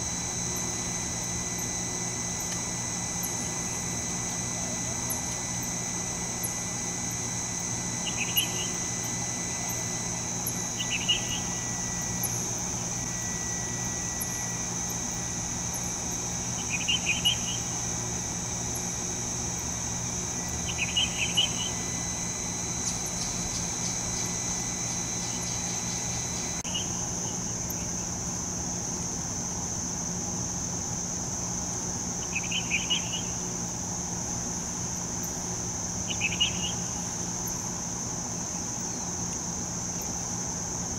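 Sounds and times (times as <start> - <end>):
thin high tone: 0.0 - 18.2
low hum: 0.0 - 28.0
crickets chirping: 0.0 - 40.9.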